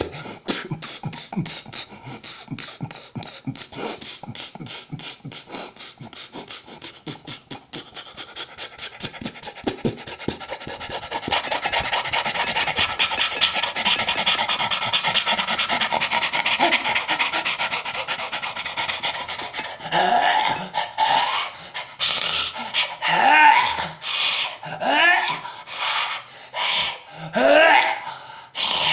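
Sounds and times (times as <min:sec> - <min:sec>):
beatboxing: 0:00.0 - 0:21.2, 0:21.8 - 0:24.2
voiced cry: 0:10.7 - 0:28.9.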